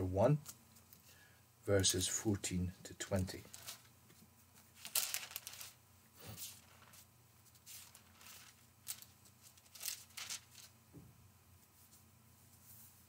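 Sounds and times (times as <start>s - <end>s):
paper pages rustling: 3.4s - 3.9s, 4.6s - 10.7s.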